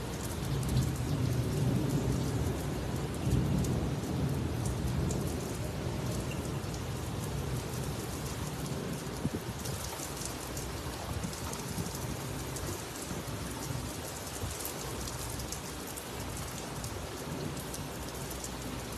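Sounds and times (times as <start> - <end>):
heavy rain on a paved rooftop: 0.0 - 18.9.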